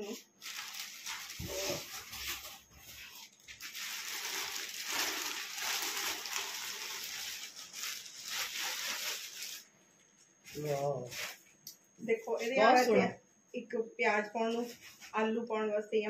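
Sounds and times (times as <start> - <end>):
plastic bag crinkling: 0.0 - 9.7.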